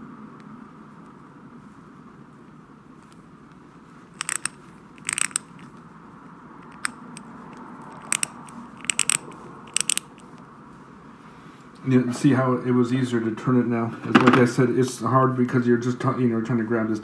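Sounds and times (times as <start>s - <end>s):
ratchet clicking: 4.2s - 5.6s, 6.6s - 7.0s, 7.9s - 10.2s.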